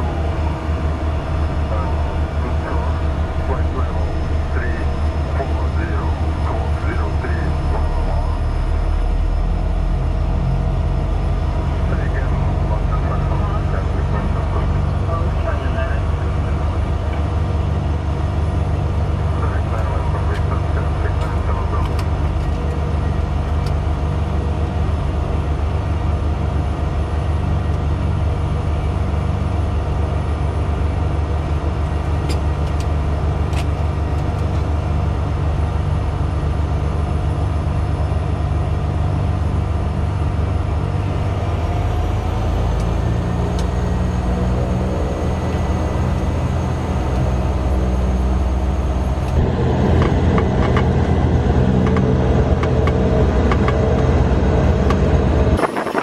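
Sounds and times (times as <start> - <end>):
turboprop engine drone: 0.0 - 56.0.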